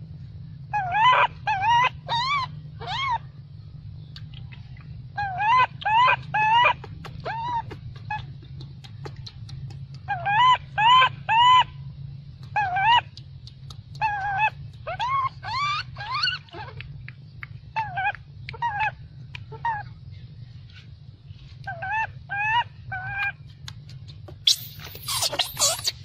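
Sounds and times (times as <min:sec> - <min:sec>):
steady low hum: 0:00.0 - 0:26.0
baby monkey whimper calls: 0:00.7 - 0:03.2, 0:05.2 - 0:08.4, 0:10.0 - 0:11.8, 0:12.4 - 0:13.2, 0:14.0 - 0:16.8, 0:17.7 - 0:19.9, 0:21.6 - 0:23.4, 0:24.3 - 0:26.0.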